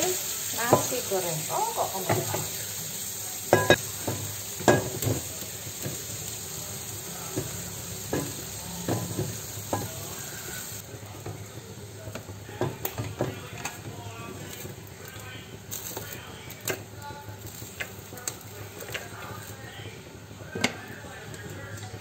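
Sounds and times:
food sizzling in a frying pan: 0.0s - 22.0s
wok clanking on stove grate: 0.6s - 1.1s, 1.9s - 2.6s, 3.5s - 6.3s, 7.3s - 10.2s.

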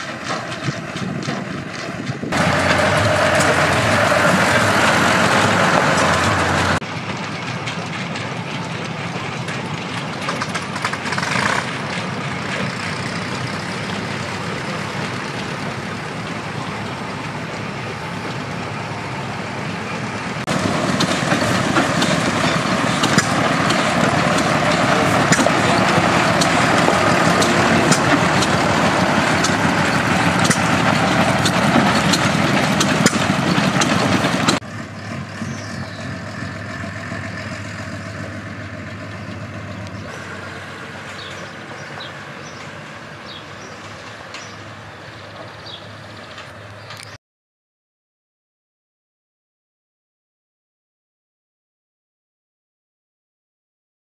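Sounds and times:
diesel engine idling: 2.2s - 47.0s
sharp engine ticks: 9.5s - 13.1s, 21.0s - 34.6s.

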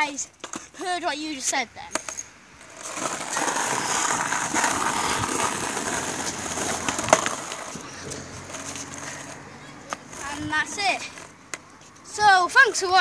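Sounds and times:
skateboard clack: 0.0s - 1.0s, 1.8s - 11.7s
skateboard wheels rolling on pavement: 0.0s - 13.0s.

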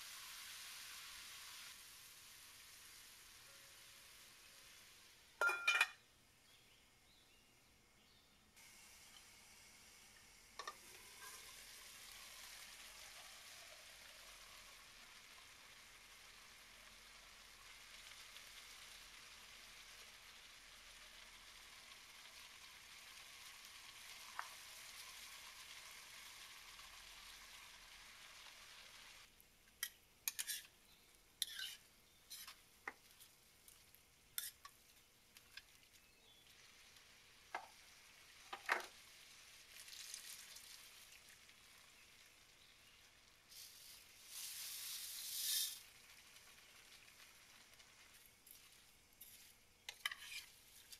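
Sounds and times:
food sizzling in a pan: 0.0s - 6.8s, 8.6s - 50.9s
water pouring into a pan: 8.6s - 29.3s, 35.4s - 49.6s
metal spoon scraping a pan: 10.6s - 11.6s, 29.8s - 33.4s, 34.4s - 34.8s, 43.5s - 45.8s, 48.4s - 50.9s.

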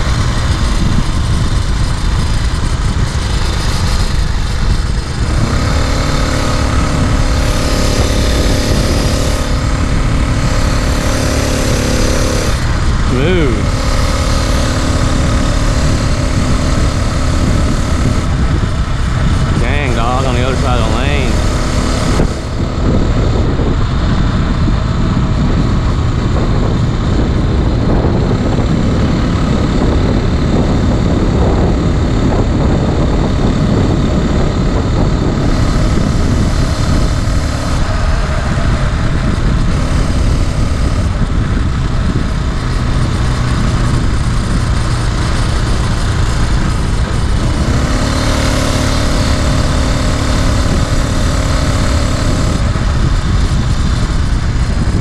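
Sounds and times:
small motorized bicycle engine: 0.0s - 19.6s
wind rush on microphone: 0.0s - 55.0s.

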